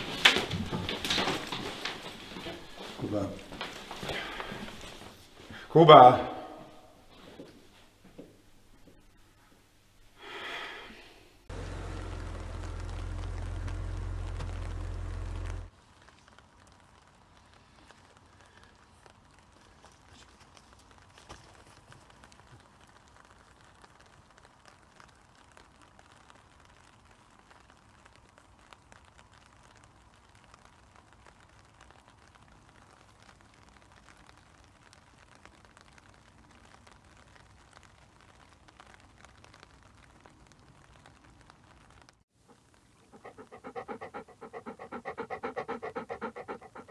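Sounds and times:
faint outdoor hiss: 0.0 - 46.9
light crackles: 0.0 - 46.9
dog panting: 42.5 - 46.9.

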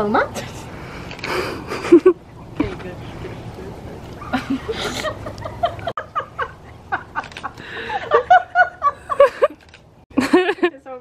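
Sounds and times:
people laughing and giggling: 1.4 - 2.2, 4.1 - 9.6, 10.2 - 10.8.

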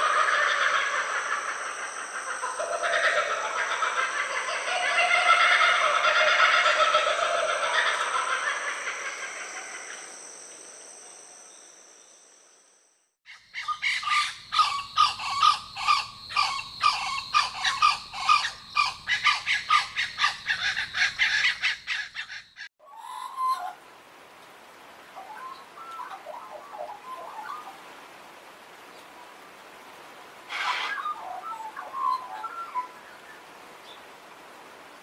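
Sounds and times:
kookaburra laughing call: 0.0 - 10.0, 13.6 - 22.4.

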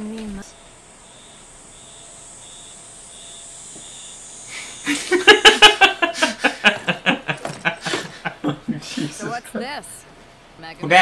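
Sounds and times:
faint high chirp: 0.0 - 5.0
people laughing: 4.5 - 10.0.

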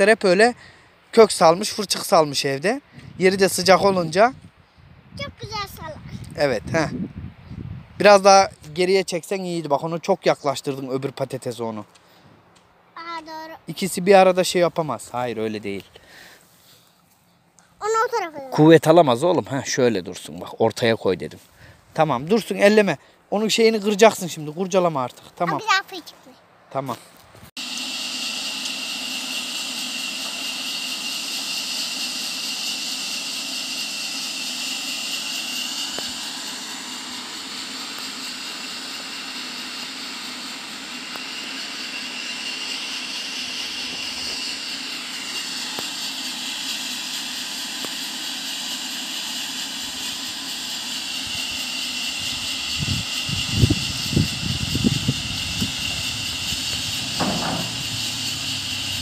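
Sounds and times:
distant rushing roar: 27.9 - 59.0
low thumps: 56.7 - 58.6.

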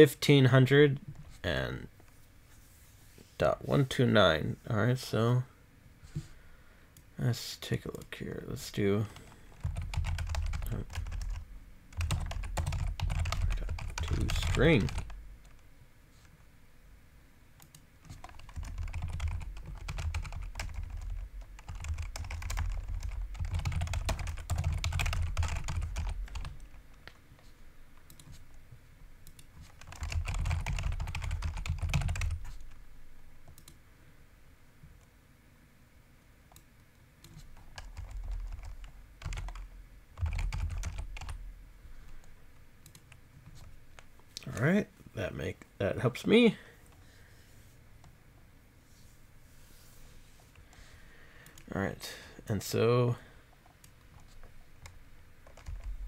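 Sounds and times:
typing on computer keyboard: 9.5 - 15.2, 17.6 - 27.2, 29.3 - 32.7, 37.2 - 39.6, 40.2 - 41.4, 53.8 - 56.0.

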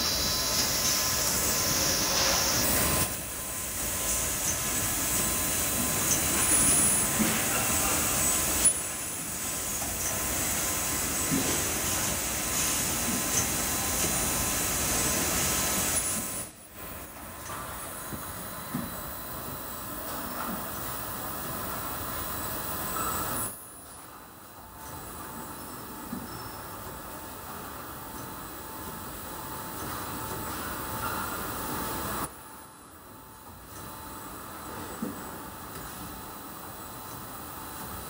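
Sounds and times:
machine hiss: 0.0 - 23.7.

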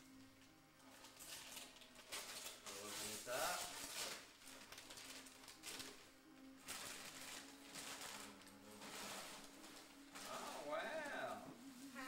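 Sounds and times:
tissue paper rustling: 0.9 - 12.0.

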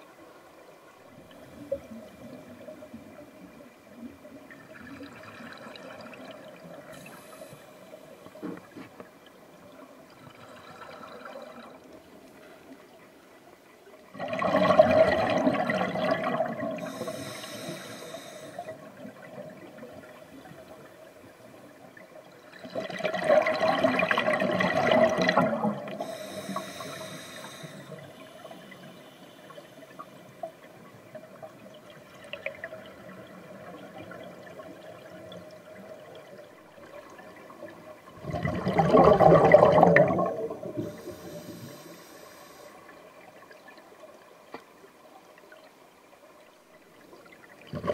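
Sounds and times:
water sound: 0.0 - 47.9
exhaled bubbles underwater: 1.0 - 7.4, 14.1 - 20.9, 21.7 - 28.9, 29.5 - 41.8, 47.2 - 47.9
regulator hiss: 16.8 - 18.7, 26.0 - 30.0, 40.8 - 42.8.

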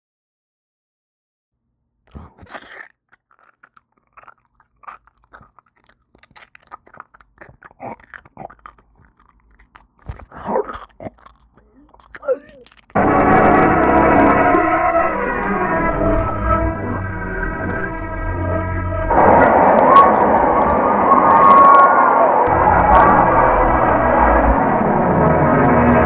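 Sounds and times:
crunching and wet chewing: 2.1 - 13.3, 14.2 - 22.6.

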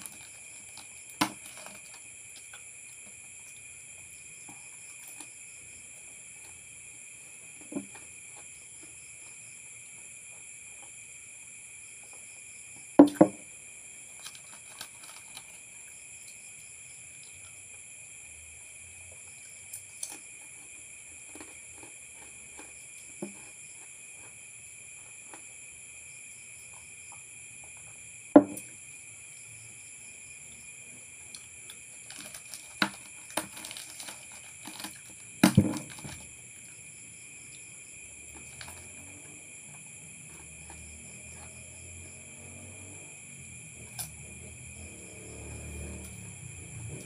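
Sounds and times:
crickets chirping: 0.0 - 47.0
knocks on a table: 13.0 - 13.4, 28.4 - 28.7, 35.4 - 35.9
person eating crackers: 31.4 - 36.0.

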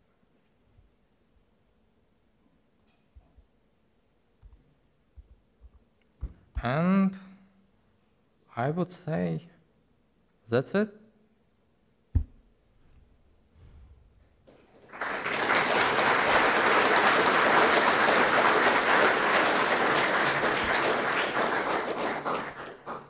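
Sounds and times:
audience applauding: 14.4 - 23.0.

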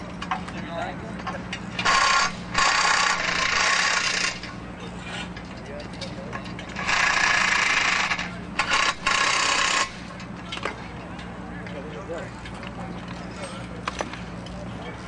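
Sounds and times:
cordless power tool driving bolts: 6.8 - 10.0.

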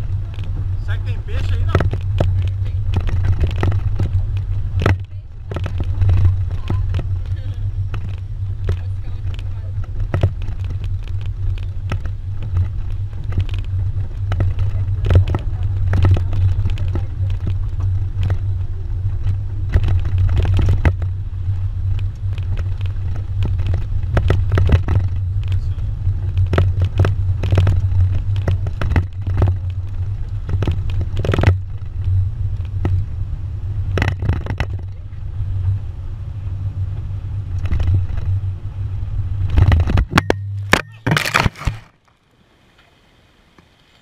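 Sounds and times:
knocks and rattles from bumps: 0.0 - 21.2, 21.9 - 32.0, 33.9 - 35.0, 39.4 - 42.0
wind buffeting microphone: 0.0 - 40.2
pickup truck rumble: 0.0 - 42.0.

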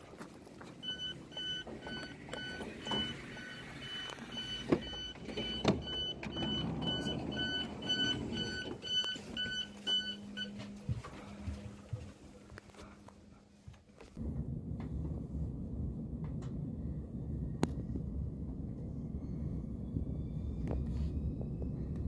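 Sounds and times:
knocks and footsteps: 0.0 - 15.4
low steady hum: 0.1 - 22.0
train door warning beeps: 0.8 - 10.8.

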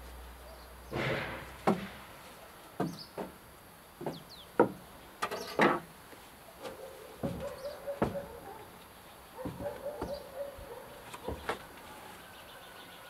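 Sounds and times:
bird calling: 6.6 - 13.0.

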